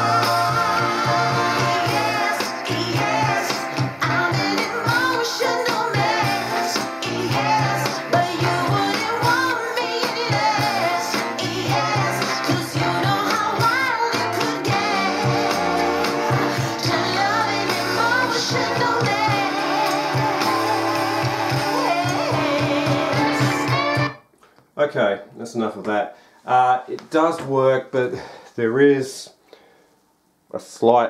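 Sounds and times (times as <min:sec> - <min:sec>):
pop song with vocals: 0:00.0 - 0:24.2.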